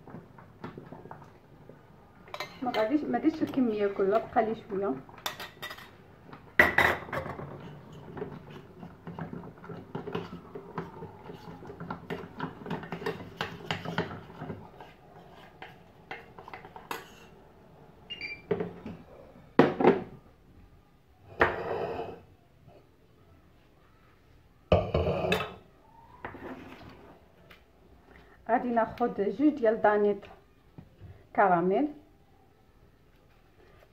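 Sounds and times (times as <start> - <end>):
dishes clattering: 5.2 - 6.0, 6.6 - 11.0, 24.7 - 25.6
spoon scraping saucepan: 7.0 - 17.4.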